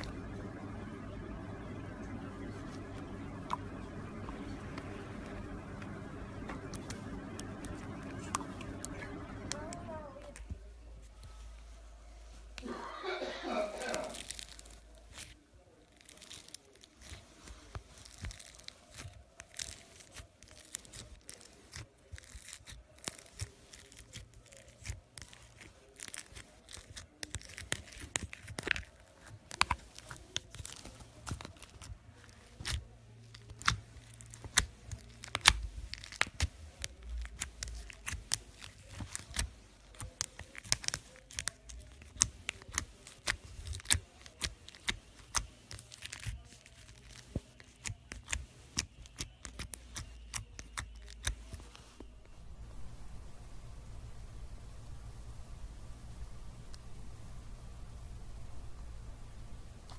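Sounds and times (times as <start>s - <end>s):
slime crackling and popping: 13.8s - 51.6s.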